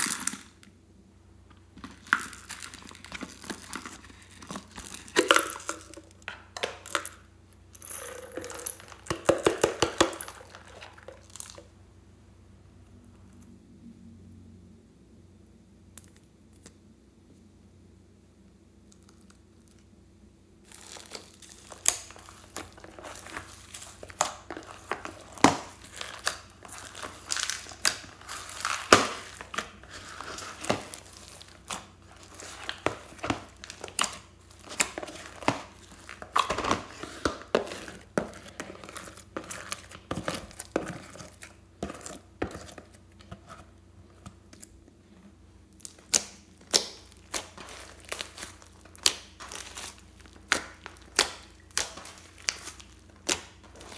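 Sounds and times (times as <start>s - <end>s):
slime squishing with pops: 1.7s - 7.3s, 20.6s - 45.0s, 45.6s - 53.9s.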